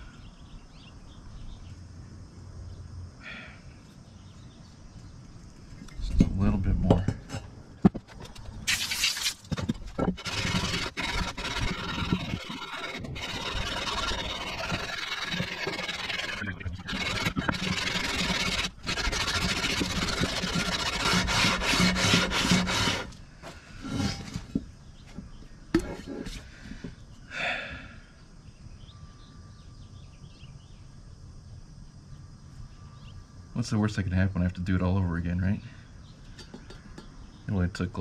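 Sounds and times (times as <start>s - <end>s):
metal scraping on sandpaper: 8.1s - 23.2s, 23.8s - 24.5s.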